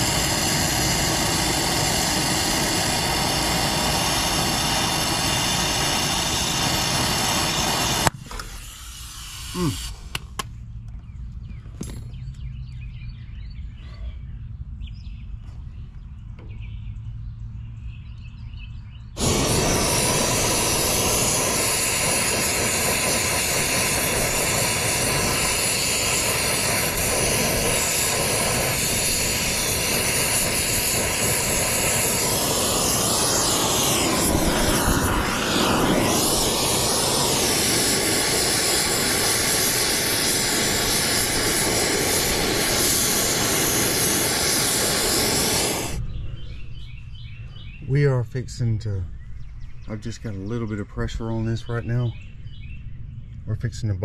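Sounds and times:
gas hissing loudly: 0.0 - 10.4, 19.2 - 46.1
low hum: 0.0 - 54.0.

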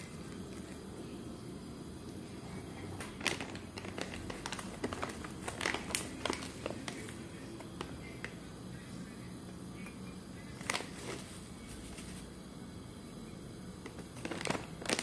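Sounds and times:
tea packet crinkling: 0.0 - 1.1, 2.8 - 8.4, 9.8 - 12.3, 13.8 - 15.0.

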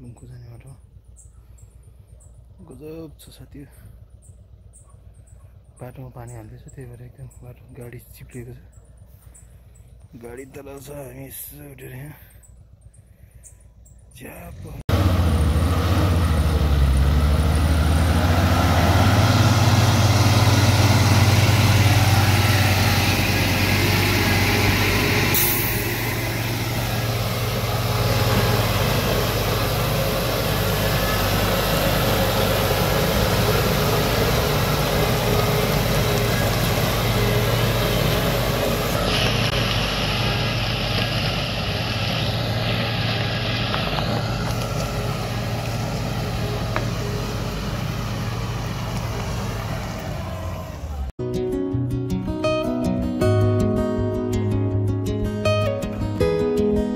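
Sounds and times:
diesel bus engine labouring: 0.0 - 51.2
burst of hiss: 25.3 - 28.8.

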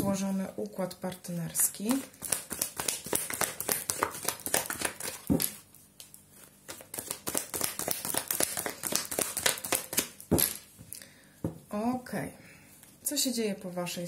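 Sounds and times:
cards being shuffled: 1.8 - 10.7.

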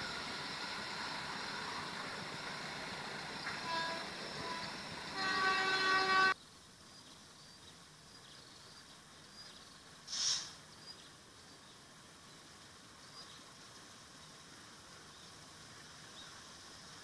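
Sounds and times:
train horn: 3.4 - 6.4.

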